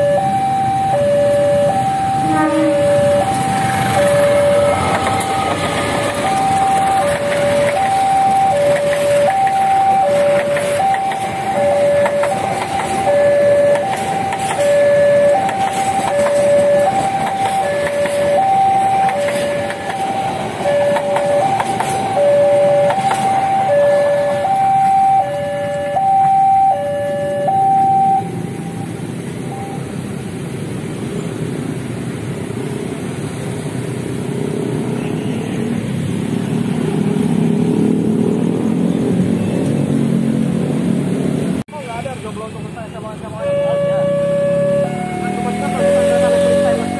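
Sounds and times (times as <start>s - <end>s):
two-tone level crossing alarm: 0.0s - 29.9s, 43.4s - 46.9s
low rumble of traffic: 0.0s - 46.9s
train wheels clattering: 10.2s - 23.4s.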